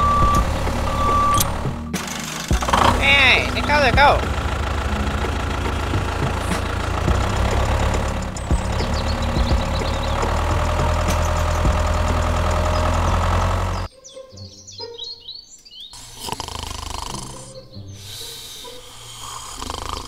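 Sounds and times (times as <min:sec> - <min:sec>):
tractor engine chugging: 0:00.0 - 0:13.9
birds chirping: 0:00.0 - 0:19.3.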